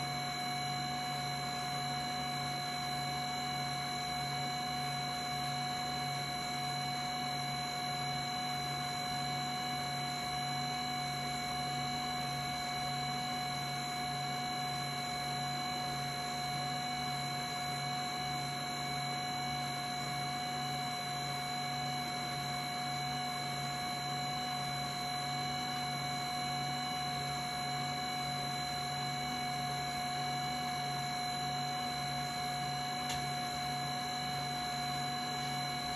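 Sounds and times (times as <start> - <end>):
record cleaner whining: 30.6 - 35.9.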